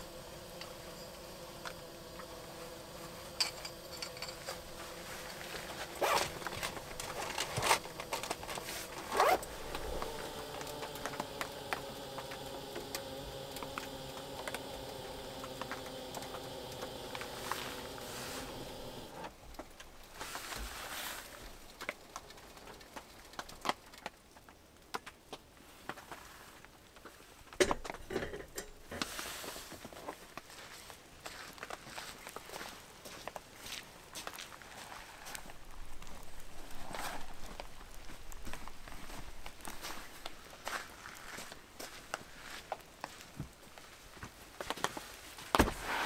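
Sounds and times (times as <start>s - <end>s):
hot water pouring: 0.0s - 19.3s
rustling of handling: 1.7s - 46.0s.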